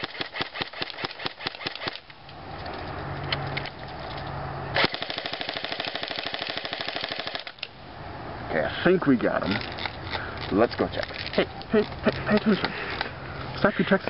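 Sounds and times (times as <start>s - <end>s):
airsoft gun shots: 0.0s - 2.0s
full-auto airsoft rattle: 4.8s - 7.7s.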